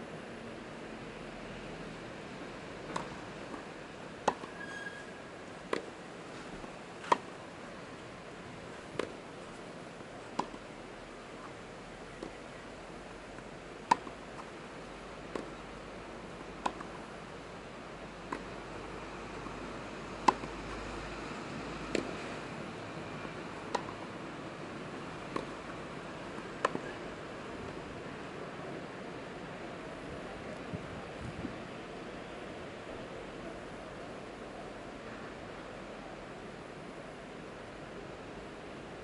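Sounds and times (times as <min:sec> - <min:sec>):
tennis ball hitting racket: 0:02.9 - 0:04.6, 0:05.7 - 0:06.0, 0:07.0 - 0:07.3, 0:08.8 - 0:09.2, 0:10.3 - 0:10.7, 0:12.2 - 0:12.4, 0:13.8 - 0:14.5, 0:15.2 - 0:15.6, 0:16.6 - 0:17.0, 0:18.3 - 0:18.6, 0:20.2 - 0:20.7, 0:21.9 - 0:22.2, 0:23.6 - 0:24.1, 0:24.9 - 0:25.8, 0:26.4 - 0:27.0.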